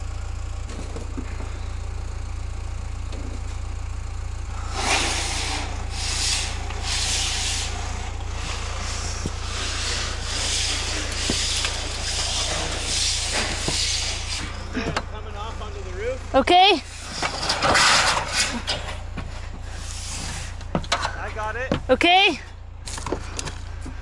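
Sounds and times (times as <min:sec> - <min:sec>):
steady low rumble: 0:00.0 - 0:24.0
metal panel sliding and rubbing: 0:04.7 - 0:14.6, 0:17.0 - 0:19.1.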